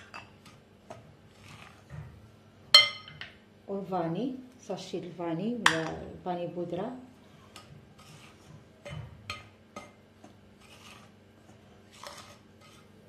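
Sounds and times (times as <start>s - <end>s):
spoon stirring dry powder: 0.0s - 2.0s, 7.4s - 13.0s.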